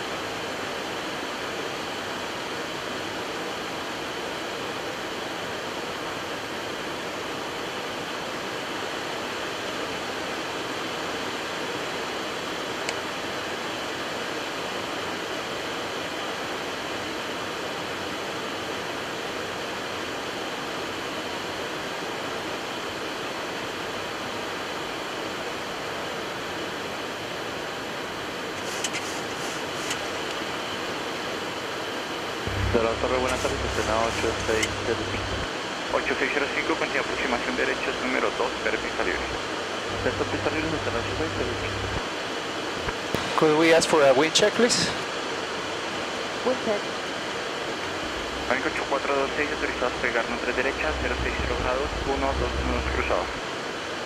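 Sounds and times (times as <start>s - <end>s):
clicks: 32.5s - 35.4s.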